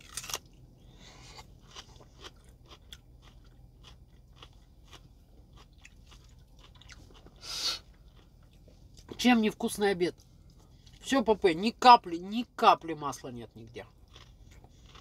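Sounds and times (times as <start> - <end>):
person chewing food: 0.0 - 9.1, 13.9 - 15.0.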